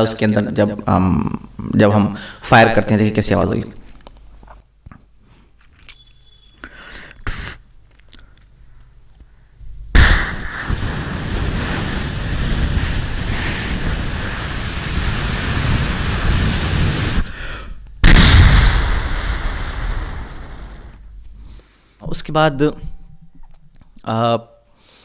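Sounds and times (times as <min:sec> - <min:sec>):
mouth-made rocket blast: 0:09.9 - 0:21.0
rushing hiss: 0:10.0 - 0:21.0.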